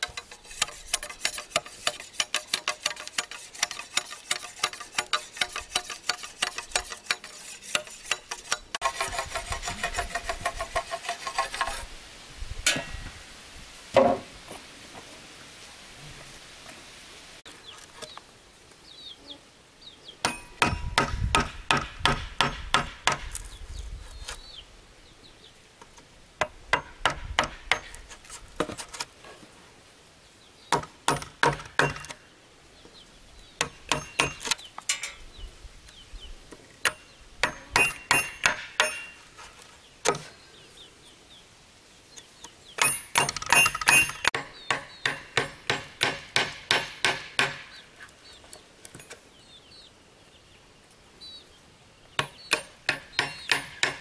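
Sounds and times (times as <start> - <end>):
hammer striking metal: 20.2 - 23.3, 33.6 - 34.5, 36.9 - 39.2, 42.8 - 47.8, 52.2 - 54.0.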